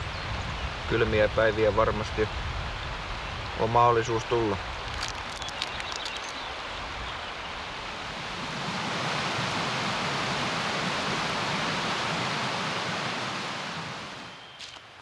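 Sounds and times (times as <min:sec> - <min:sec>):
river rapids rushing: 0:07.6 - 0:14.3.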